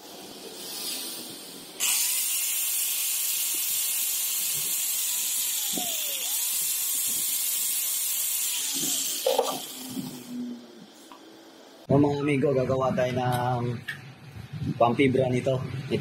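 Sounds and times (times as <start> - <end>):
electric drill whining: 1.8 - 10.4.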